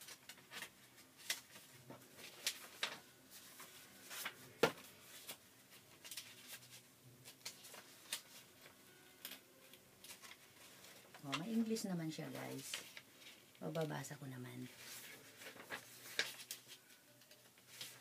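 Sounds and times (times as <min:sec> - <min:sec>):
paper rustling and crinkling: 0:00.0 - 0:18.0
paper snap: 0:00.1 - 0:01.5.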